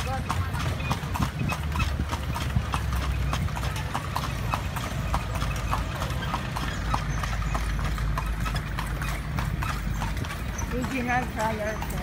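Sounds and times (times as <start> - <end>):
horse hooves clip-clopping: 0.0 - 12.0.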